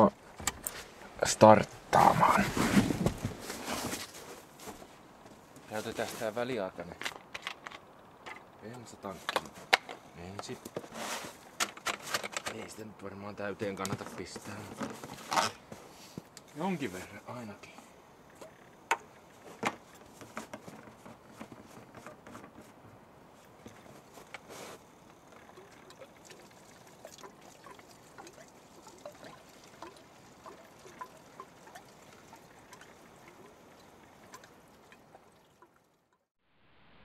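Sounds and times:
fuel trickling and sloshing: 0:23.4 - 0:36.3.

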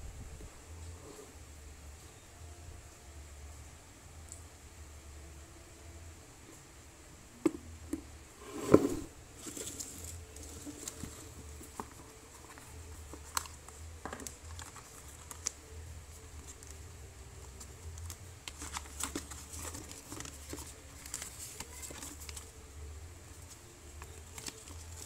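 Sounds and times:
paper rustling: 0:08.7 - 0:16.8, 0:17.4 - 0:22.6, 0:23.3 - 0:25.0.

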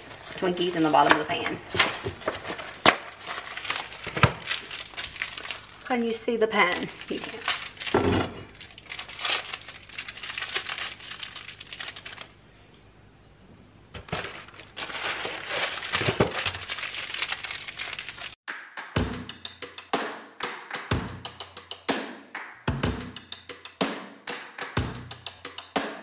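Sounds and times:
plastic wrappers crinkling and tearing: 0:00.0 - 0:12.4, 0:14.0 - 0:18.4
background music with drum beat: 0:18.5 - 0:26.0.

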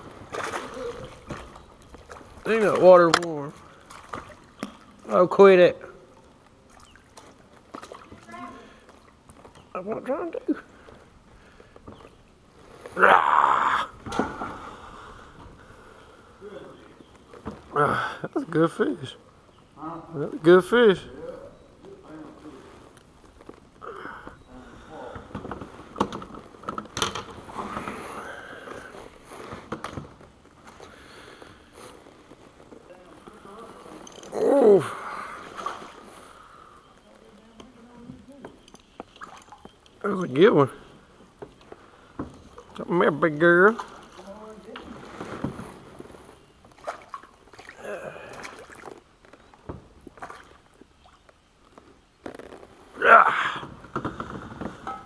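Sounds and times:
clicks and knocks in plastic kayak: 0:25.1 - 0:28.0, 0:29.4 - 0:30.9, 0:53.6 - 0:55.0.

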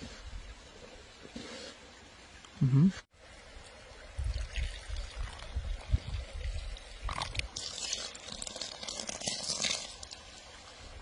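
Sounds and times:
liquid poured into wooden bowl: 0:04.3 - 0:10.4.

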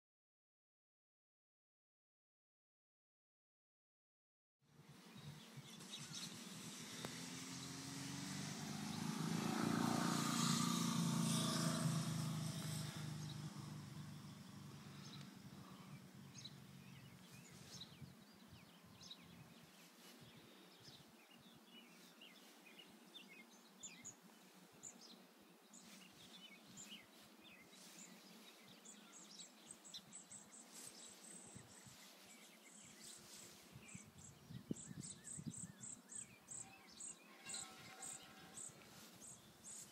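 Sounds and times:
vehicle passing: 0:05.2 - 0:17.5, 0:37.0 - 0:39.9
bird chirps: 0:24.8 - 0:39.9.

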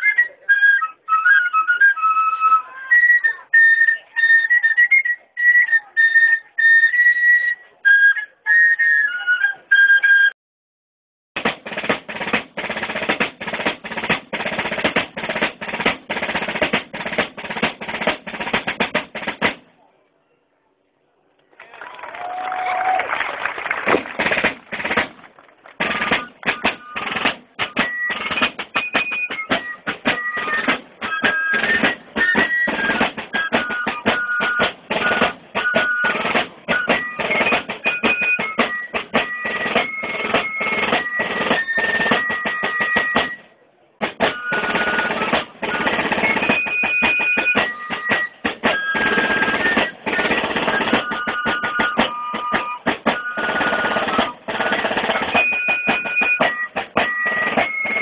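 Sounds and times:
fife melody: 0:00.0 - 0:10.4, 0:11.4 - 0:19.7, 0:23.9 - 0:58.0
snare drum rolls: 0:11.4 - 0:19.7, 0:22.1 - 0:43.4, 0:44.0 - 0:58.0.

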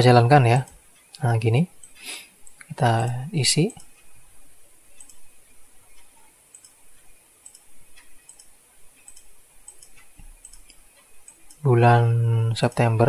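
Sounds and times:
computer mouse clicking: 0:01.8 - 0:02.7, 0:03.6 - 0:04.1, 0:04.9 - 0:11.7.

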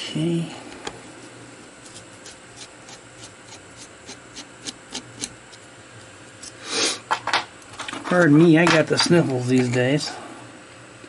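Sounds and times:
screwdriver scraping steel chuck: 0:01.9 - 0:05.6.

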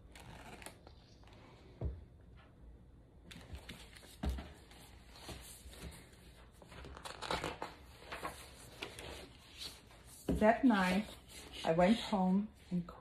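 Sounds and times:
book pages rustling: 0:00.1 - 0:01.4, 0:03.3 - 0:11.9.

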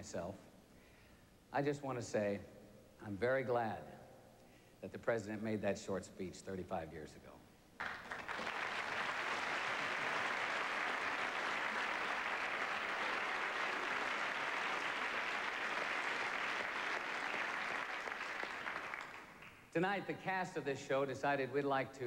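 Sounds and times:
audience applauding: 0:07.8 - 0:19.7.

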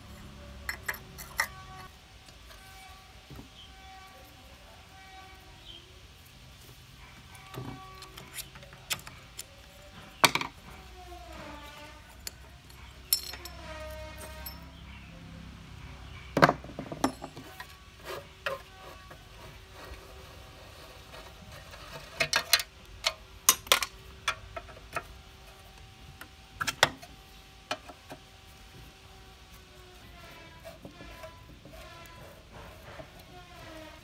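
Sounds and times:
metal tools clinking on engine: 0:12.6 - 0:14.8.

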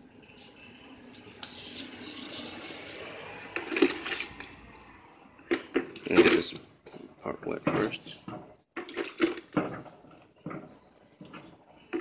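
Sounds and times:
water splashing on plastic: 0:08.8 - 0:09.8.

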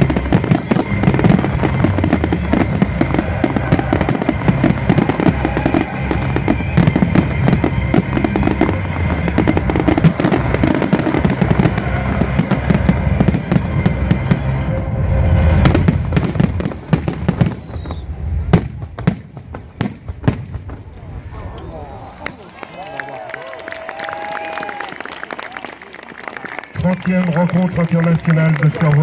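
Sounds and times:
fireworks bangs and crackle: 0:00.0 - 0:21.2.

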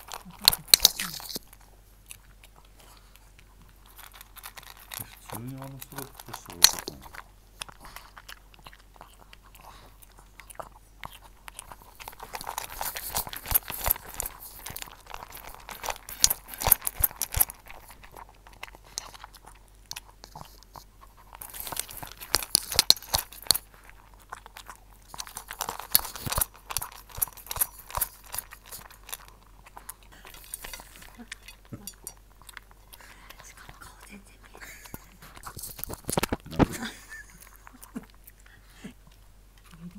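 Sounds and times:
dog licking: 0:00.0 - 0:31.8
kibble rattling in metal bowl: 0:03.8 - 0:07.2, 0:30.3 - 0:32.2.

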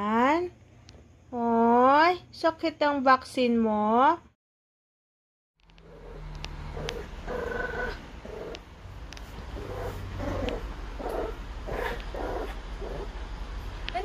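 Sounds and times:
puppy growling and grunting: 0:05.7 - 0:13.2.

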